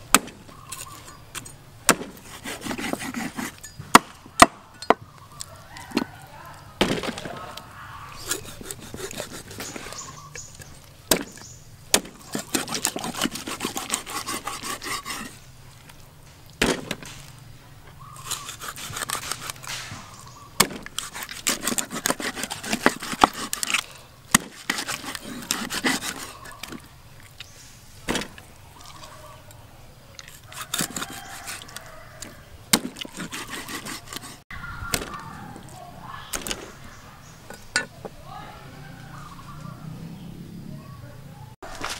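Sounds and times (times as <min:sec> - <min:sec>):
cleaver chopping on wooden board: 0:00.1 - 0:00.5, 0:01.9 - 0:05.0, 0:11.1 - 0:15.3, 0:16.6 - 0:17.1, 0:20.6 - 0:26.8, 0:28.1 - 0:28.4, 0:32.7 - 0:35.2
blade scraping and cutting: 0:00.2 - 0:04.0, 0:08.1 - 0:15.5, 0:18.1 - 0:26.9, 0:30.2 - 0:34.5.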